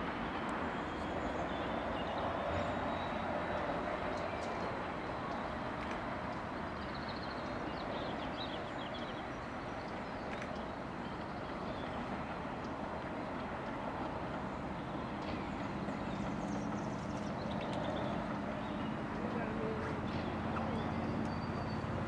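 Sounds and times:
distant diesel train: 0.0s - 22.0s
birds chirping: 14.5s - 22.0s.

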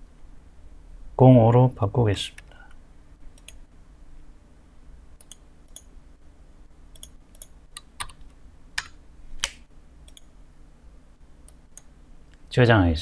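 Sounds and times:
keyboard and mouse clicks: 3.3s - 3.6s, 5.2s - 5.9s, 7.0s - 10.3s.

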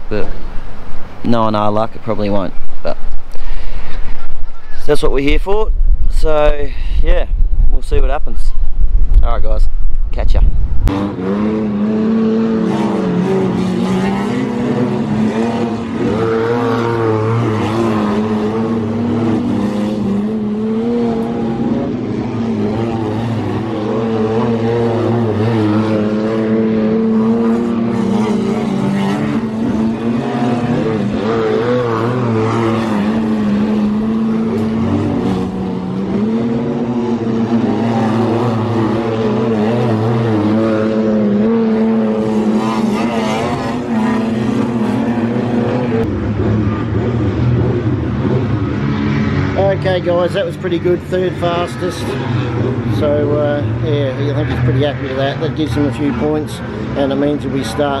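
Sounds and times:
race car engine at speed: 0.0s - 58.0s.

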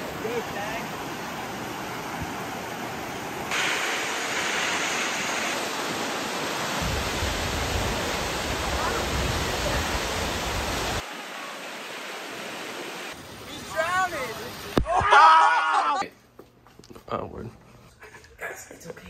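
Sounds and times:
waterfall rushing: 0.0s - 14.8s.

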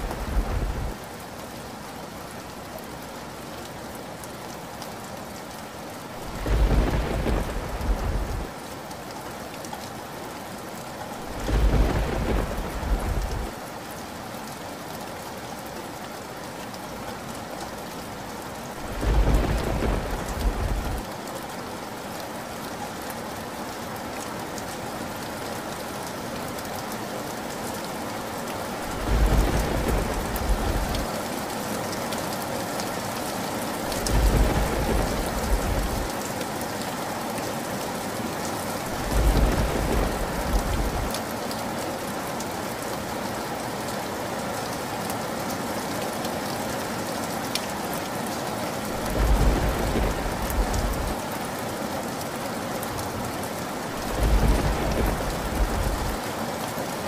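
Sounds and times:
deep thunder rumbles: 0.0s - 1.0s, 6.2s - 8.5s, 11.2s - 13.5s, 18.8s - 21.0s, 28.9s - 31.1s, 33.9s - 36.1s, 38.9s - 41.2s, 49.0s - 51.2s, 54.0s - 56.2s
heavy rain: 0.0s - 57.0s.

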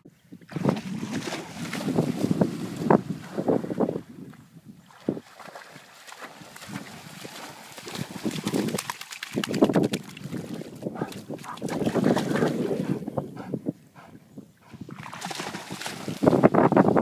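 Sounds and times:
dog splashing through water: 0.5s - 3.4s, 4.9s - 12.8s, 14.9s - 16.5s
dog panting: 12.8s - 14.8s.

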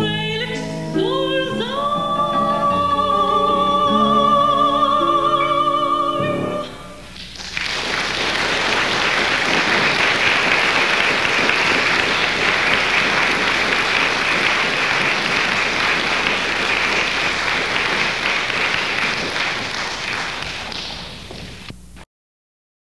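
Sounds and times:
audience applauding: 7.1s - 21.7s.

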